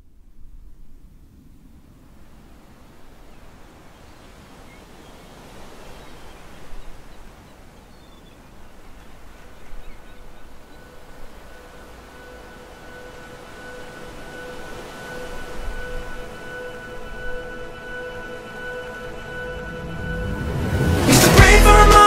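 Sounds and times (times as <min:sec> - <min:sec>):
outdoor ambient noise: 0:00.0 - 0:22.0
faint bird chirps: 0:03.2 - 0:20.0
steady held tone: 0:09.6 - 0:22.0.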